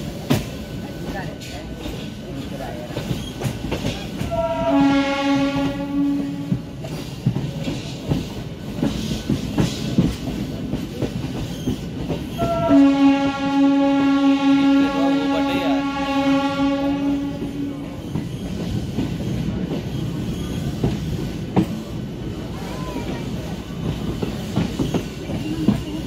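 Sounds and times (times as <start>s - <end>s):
train wheels clattering over rail joints: 0.0s - 4.6s, 5.4s - 12.9s, 17.8s - 26.0s
train horn blasts: 4.2s - 6.8s, 12.4s - 18.0s.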